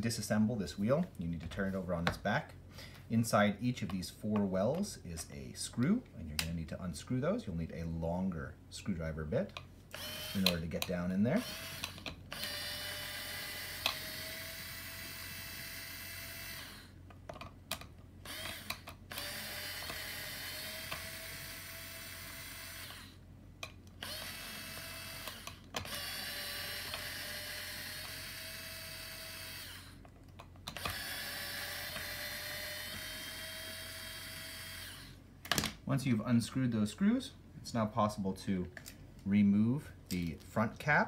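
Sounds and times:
electric screwdriver whirring: 0:09.9 - 0:10.7, 0:11.4 - 0:16.9, 0:18.2 - 0:23.2, 0:23.9 - 0:30.0, 0:30.7 - 0:35.2.

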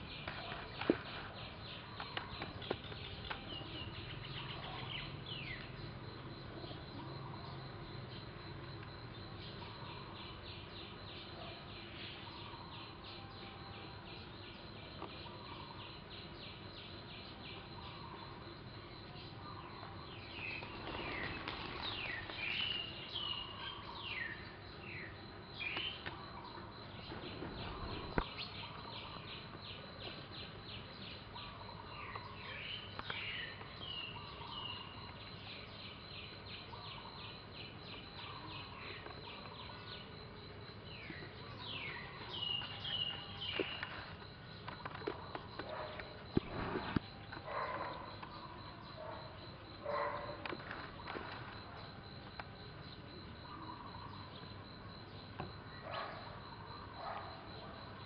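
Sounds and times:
insect chirping: 0:00.0 - 0:58.0
birds whistling calls: 0:14.6 - 0:40.2, 0:40.9 - 0:44.0.

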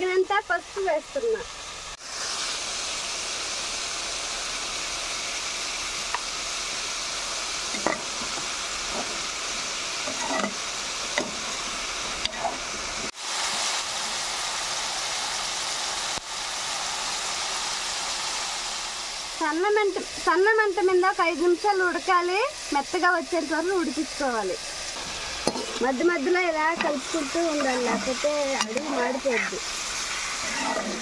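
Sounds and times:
vegetables sizzling in hot oil: 0:00.0 - 0:31.0
spoon scraping a pan: 0:07.7 - 0:09.2, 0:10.0 - 0:10.6, 0:25.0 - 0:25.9, 0:26.7 - 0:31.0.

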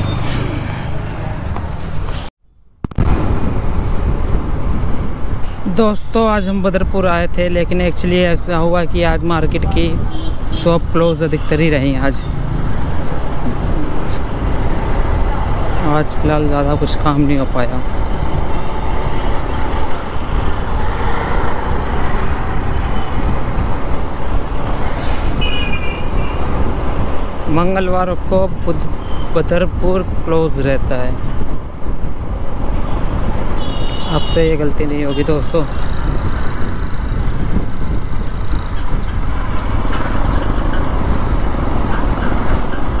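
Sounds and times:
road traffic rumble: 0:00.0 - 0:43.0
wind buffeting microphone: 0:02.8 - 0:05.7, 0:12.2 - 0:34.0, 0:35.7 - 0:43.0.

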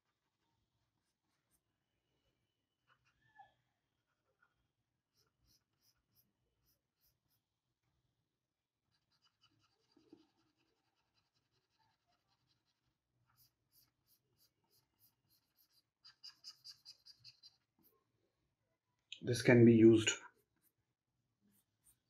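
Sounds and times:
stylus scratching on tablet: 0:05.1 - 0:07.5, 0:08.8 - 0:18.0, 0:20.2 - 0:22.0.

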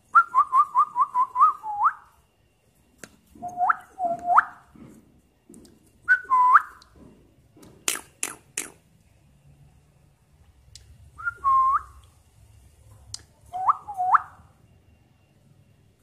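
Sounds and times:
cockatiel whistling: 0:03.4 - 0:04.6, 0:13.6 - 0:14.4
sharp clicks: 0:07.8 - 0:08.8.

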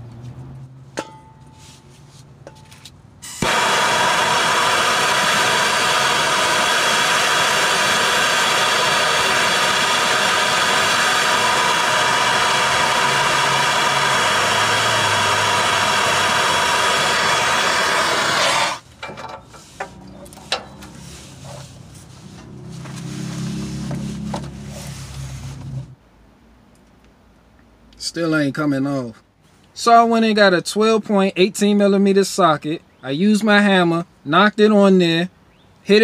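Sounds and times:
gas torch roaring: 0:03.2 - 0:18.8, 0:22.5 - 0:26.0.

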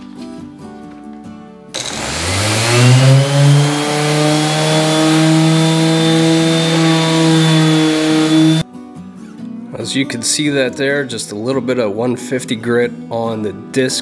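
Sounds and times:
orbital sander whine: 0:01.8 - 0:08.6.

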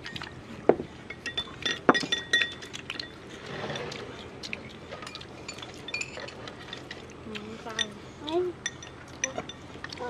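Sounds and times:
chopsticks clinking on ceramic bowls: 0:01.1 - 0:03.2, 0:05.0 - 0:10.0.

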